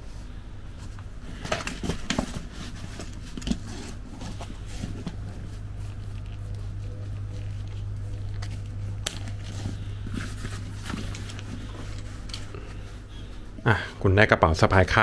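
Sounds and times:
steady low hum: 0.0 - 15.0
fabric rustling: 0.7 - 13.6.

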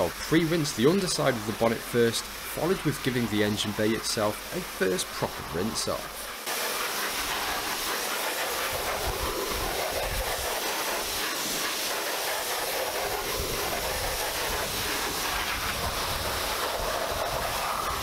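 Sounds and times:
pressure washer spraying sheet metal: 0.0 - 18.0.

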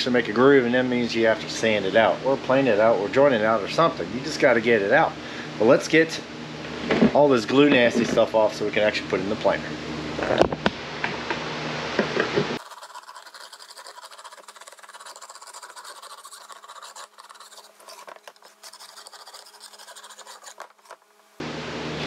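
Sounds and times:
chisel scraping wood: 12.6 - 21.0.

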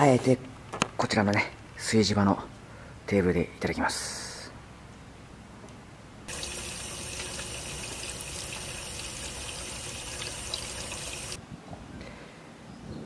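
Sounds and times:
tap water splashing on fruit: 6.3 - 11.4.

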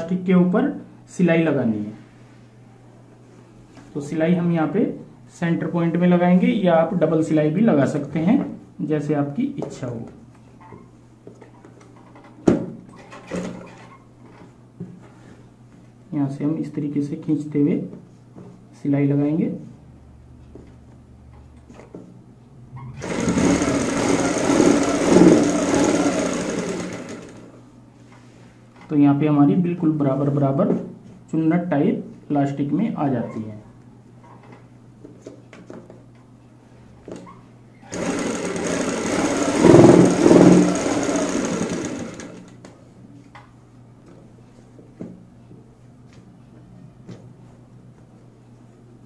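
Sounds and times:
sewing machine running: 23.0 - 27.6, 37.8 - 42.6.

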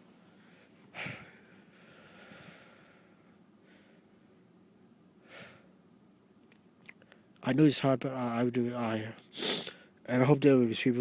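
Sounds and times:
man breathing close to microphone: 0.3 - 4.1.

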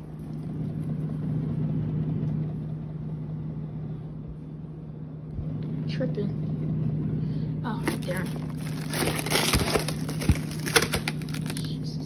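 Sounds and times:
faint rumble: 0.0 - 12.0
refrigerator humming: 0.0 - 12.0.

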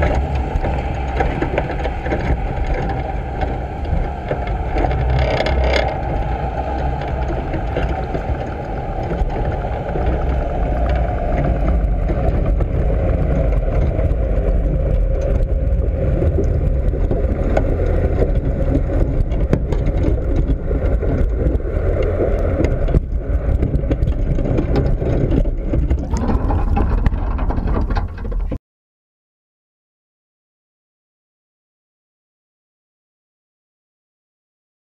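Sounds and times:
muffled underwater rumble: 0.0 - 28.6.

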